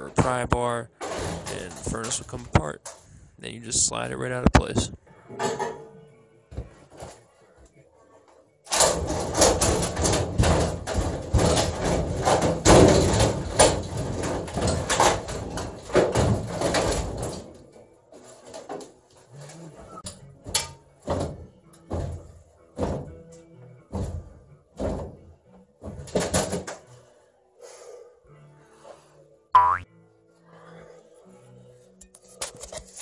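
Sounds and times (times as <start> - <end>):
metal clanks and bangs: 0.0 - 3.0, 5.3 - 5.9, 8.7 - 26.8
knocks and thumps: 8.7 - 17.7, 20.0 - 23.2, 23.9 - 26.8.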